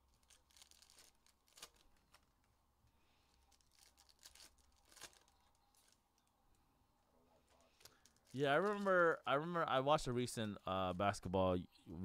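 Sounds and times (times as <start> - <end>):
card wrappers crinkling: 0.0 - 2.5, 3.2 - 6.6, 7.4 - 9.4.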